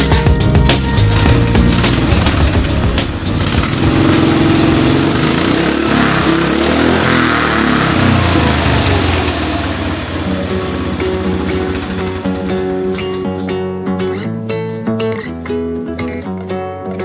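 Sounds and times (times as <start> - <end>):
motorcycle engine revving: 0.8 - 13.6.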